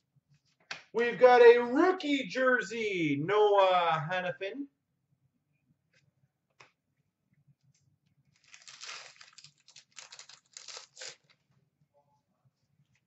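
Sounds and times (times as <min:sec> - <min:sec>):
wrapper tearing and crinkling: 0:08.4 - 0:11.4.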